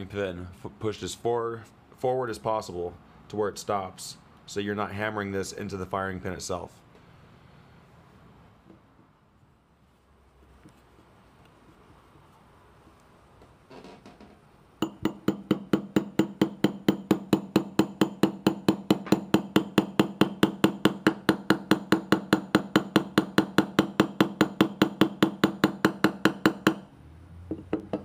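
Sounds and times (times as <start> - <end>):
hammer tapping on metal: 14.8 - 26.8.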